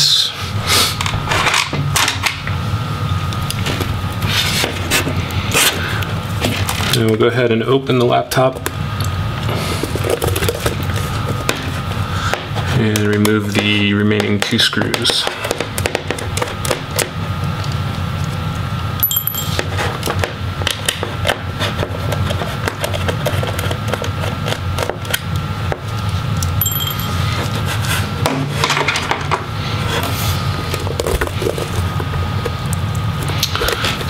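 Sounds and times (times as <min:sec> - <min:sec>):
metal part clinking: 0:19.0 - 0:19.6, 0:26.6 - 0:27.2.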